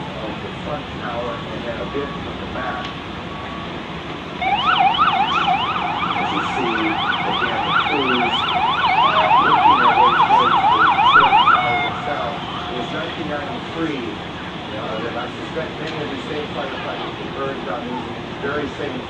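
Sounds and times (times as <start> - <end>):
siren yelping: 4.4 - 13.6.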